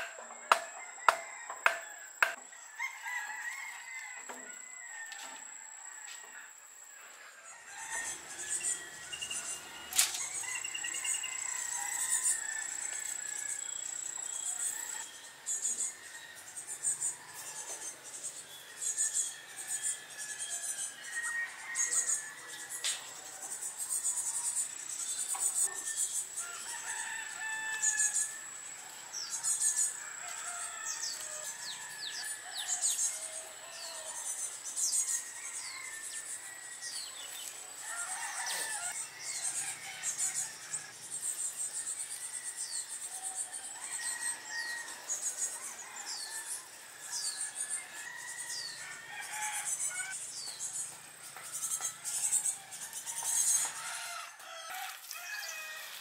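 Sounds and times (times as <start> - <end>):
rooster crowing: 0.0 - 6.4, 7.5 - 13.7, 26.4 - 28.6, 37.8 - 40.9, 53.1 - 56.0.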